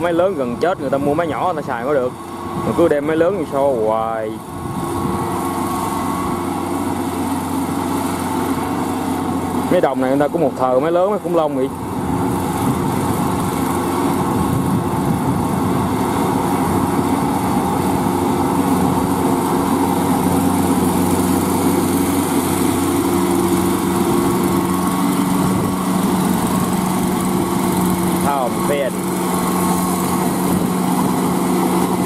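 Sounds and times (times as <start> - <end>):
tractor diesel engine running: 0.0 - 32.0.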